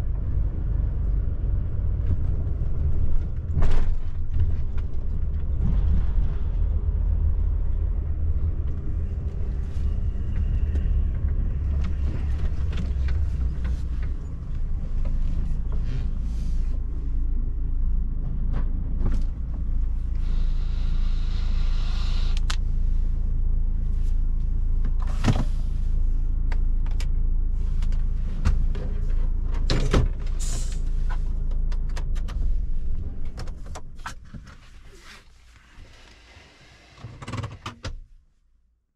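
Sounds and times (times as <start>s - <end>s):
truck diesel engine rumbling: 0.0s - 34.0s
hiss: 20.2s - 22.5s.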